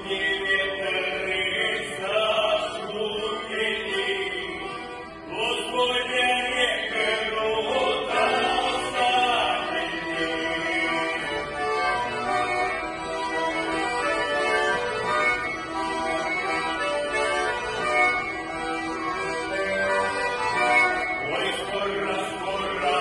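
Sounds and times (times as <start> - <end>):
men's choir singing: 5.6 - 11.2.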